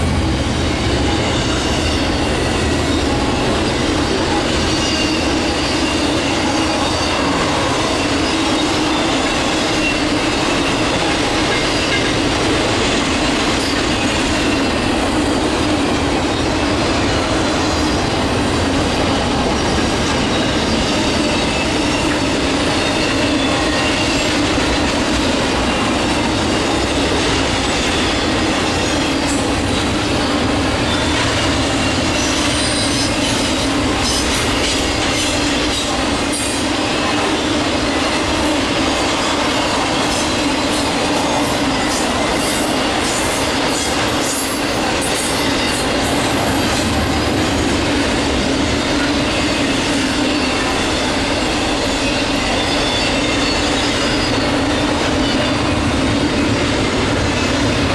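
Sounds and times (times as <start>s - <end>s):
train wheels rumbling on rail: 0.0s - 57.9s.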